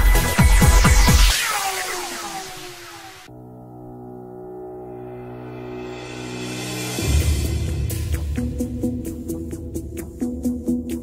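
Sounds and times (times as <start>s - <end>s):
electronic dance music: 0.0s - 3.3s
falling sweeping tones: 0.2s - 3.4s.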